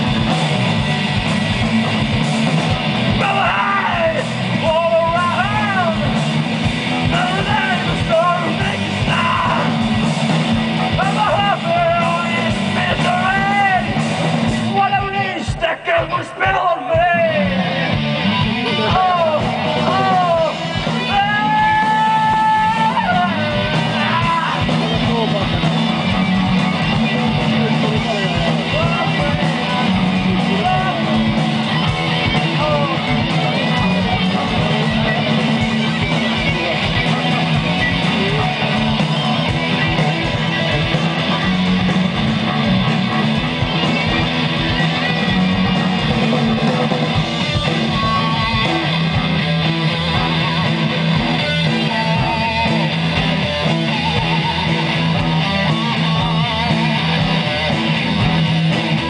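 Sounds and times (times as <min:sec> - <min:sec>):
drum strikes: 0:00.0 - 0:15.6
rock band playing live: 0:00.0 - 0:59.0.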